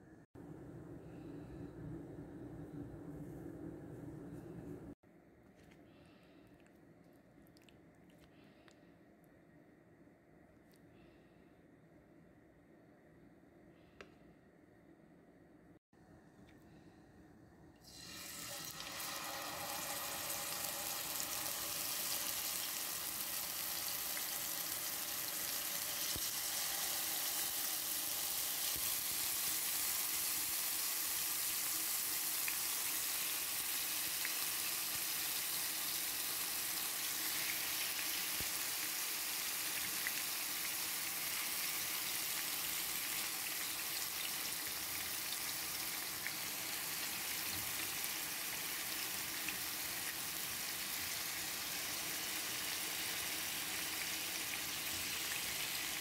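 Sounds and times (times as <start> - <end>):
chicken sizzling in hot oil: 17.8 - 56.0.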